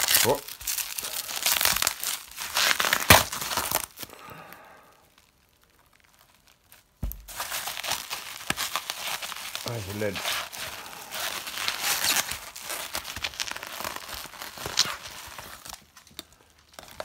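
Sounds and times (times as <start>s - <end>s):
bubble wrap crinkling: 0.0s - 17.0s
sudden thump: 7.0s - 7.4s.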